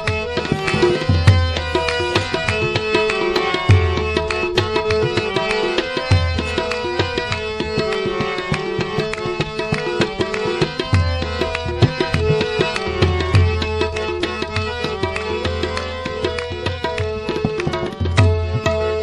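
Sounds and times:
sustained harmonium notes: 0.0 - 19.0
tabla playing quick strokes: 0.3 - 7.8.

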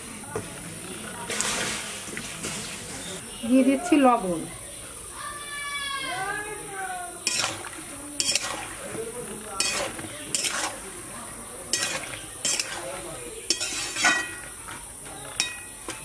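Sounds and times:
metal spoon scraping a pot: 7.2 - 16.0.

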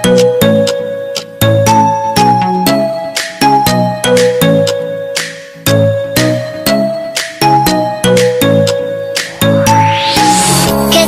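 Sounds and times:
electronic music with struck notes: 0.0 - 11.0
rising sweep: 9.3 - 11.0.

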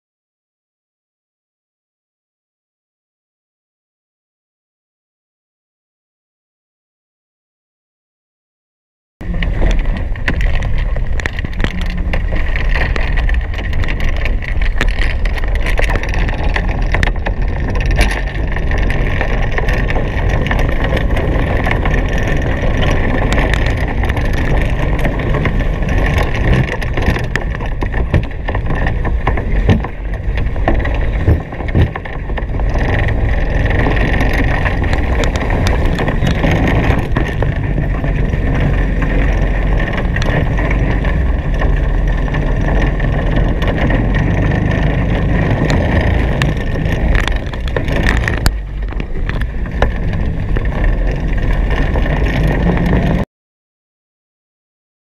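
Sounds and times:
wind buffeting microphone: 9.2 - 53.2.

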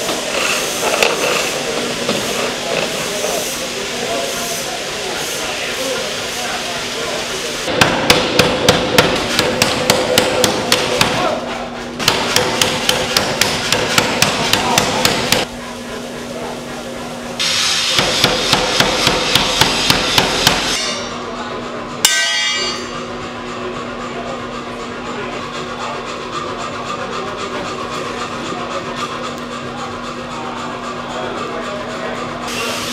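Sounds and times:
power hammer pounding steel: 7.7 - 15.5, 17.4 - 21.1, 22.0 - 23.2
metal clang ringing: 22.0 - 23.0.

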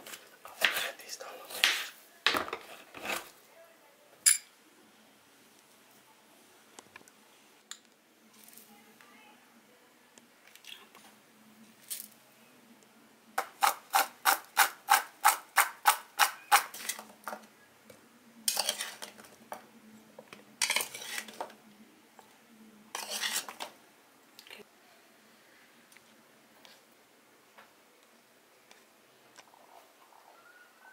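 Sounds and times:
metal spoon scraping a plate: 18.5 - 19.1, 20.6 - 21.4, 23.0 - 23.6.

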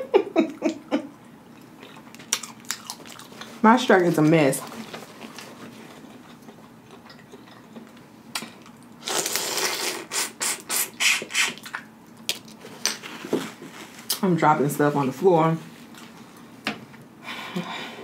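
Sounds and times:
chewing: 1.5 - 3.6, 4.6 - 9.0
sucking noises: 9.0 - 11.6
lip smacks: 9.7 - 12.5.

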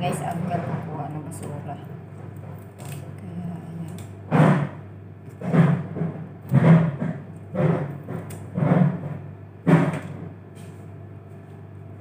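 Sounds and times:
knife chopping on cutting board: 4.3 - 10.2.

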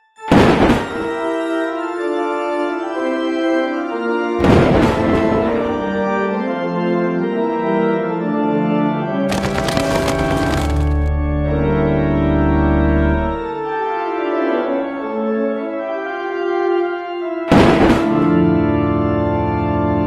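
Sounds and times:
dramatic organ chords: 0.0 - 20.0
loud crash: 4.4 - 5.6.

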